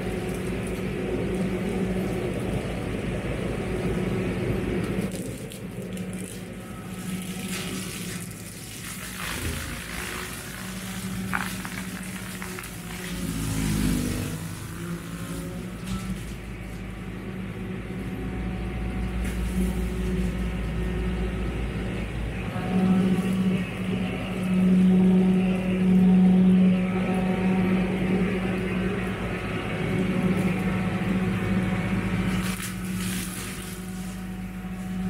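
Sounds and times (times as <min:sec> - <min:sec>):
tractor engine humming: 0:00.0 - 0:35.0
brush cutter shredding brush: 0:07.6 - 0:16.7, 0:31.5 - 0:35.0.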